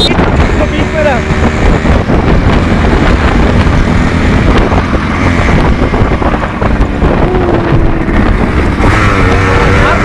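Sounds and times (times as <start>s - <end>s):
motorcycle engines running: 0.0s - 10.0s
wind buffeting microphone: 0.0s - 10.0s.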